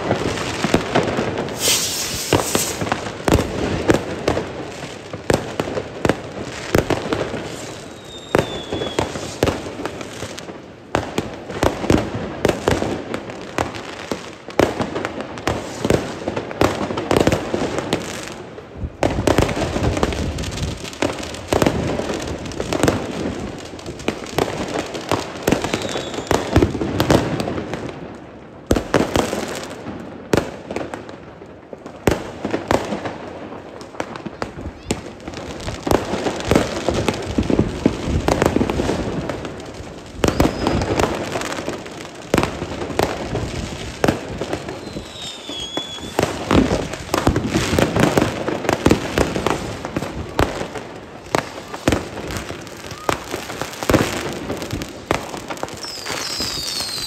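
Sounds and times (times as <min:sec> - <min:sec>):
fireworks bangs and crackles: 0:00.0 - 0:57.0
falling firework whistle: 0:01.4 - 0:03.4, 0:07.3 - 0:09.7, 0:25.4 - 0:26.7, 0:40.2 - 0:41.2, 0:44.7 - 0:46.9, 0:52.8 - 0:54.0, 0:55.7 - 0:57.0.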